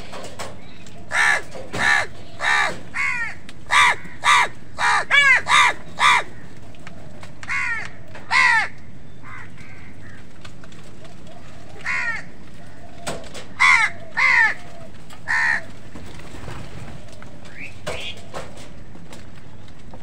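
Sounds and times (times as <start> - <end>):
crows cawing: 1.0 - 16.0.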